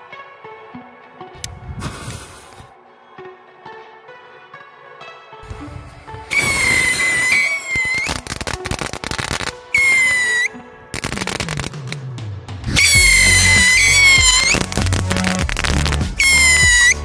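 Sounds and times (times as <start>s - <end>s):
fireworks crackling and popping: 1.8s - 2.6s, 6.2s - 12.0s, 12.7s - 17.0s
whistling fireworks: 6.3s - 12.0s, 12.7s - 17.0s.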